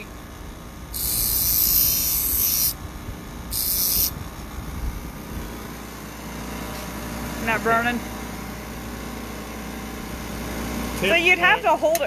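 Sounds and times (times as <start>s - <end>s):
bench grinder motor hum: 0.0s - 11.8s
grinder wheel rasping on steel: 0.9s - 2.8s, 3.5s - 4.2s.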